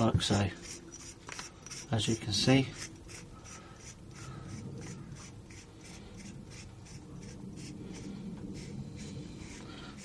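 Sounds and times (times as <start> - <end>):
metal tube scraping: 0.0 - 10.0.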